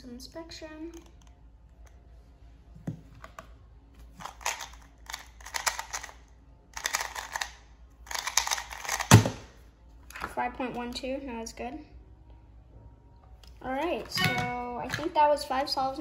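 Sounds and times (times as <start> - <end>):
plastic puzzle cube clicking: 4.2 - 6.2, 6.8 - 9.3.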